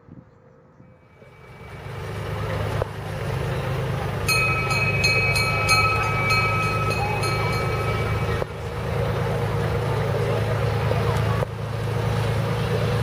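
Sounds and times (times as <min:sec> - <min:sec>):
low engine rumble: 0:00.0 - 0:13.0
bell ringing: 0:01.0 - 0:02.8, 0:04.2 - 0:09.3.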